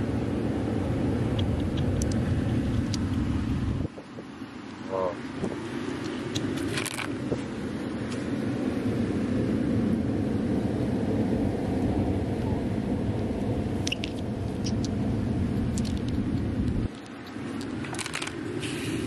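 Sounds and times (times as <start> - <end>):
wind buffeting microphone: 0.0 - 19.0
pebbles clicking: 13.9 - 15.0, 15.6 - 18.5.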